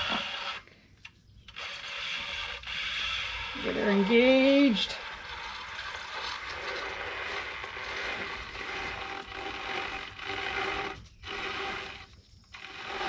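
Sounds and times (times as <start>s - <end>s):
drive belt rubbing and scraping: 0.0s - 0.6s, 1.5s - 13.0s.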